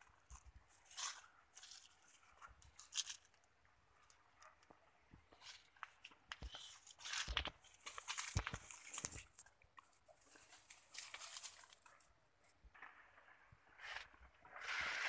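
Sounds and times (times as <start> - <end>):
leaves and twigs rustling: 0.1 - 3.4, 5.3 - 12.2
dry leaves crunching underfoot: 6.5 - 9.5, 10.2 - 12.0.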